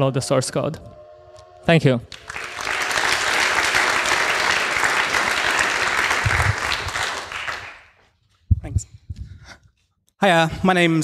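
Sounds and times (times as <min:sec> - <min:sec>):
audience applauding: 0:02.1 - 0:08.1.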